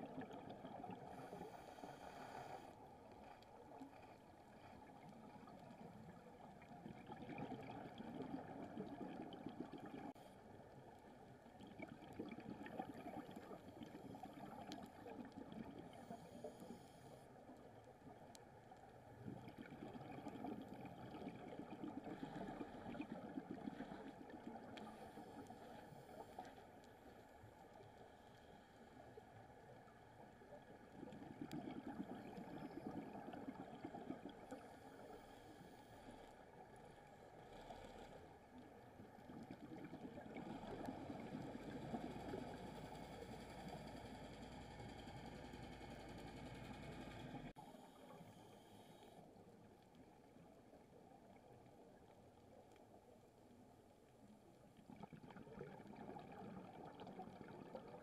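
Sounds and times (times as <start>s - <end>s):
muffled underwater crackling hiss: 0.0s - 58.0s.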